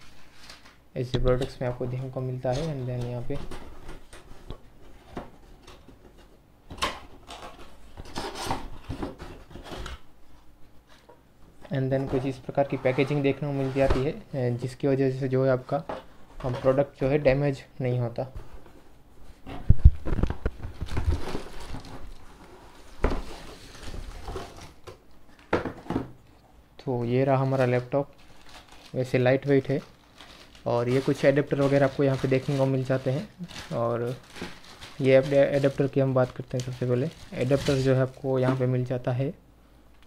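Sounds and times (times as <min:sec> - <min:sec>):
cardboard scraping and rustling: 0:07.3 - 0:10.0, 0:19.4 - 0:24.8.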